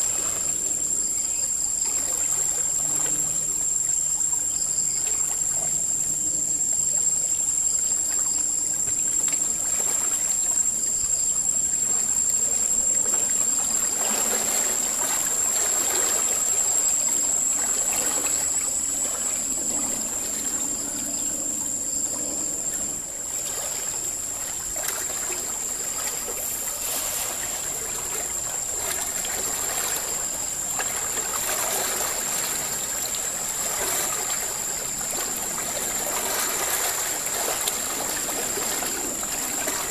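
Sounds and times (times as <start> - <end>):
water rushing and swirling: 0.0 - 39.9.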